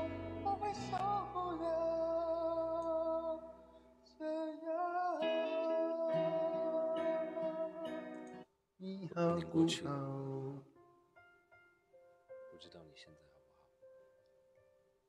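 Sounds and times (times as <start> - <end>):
song with sung melody: 0.0 - 8.4
guitar: 0.0 - 10.6.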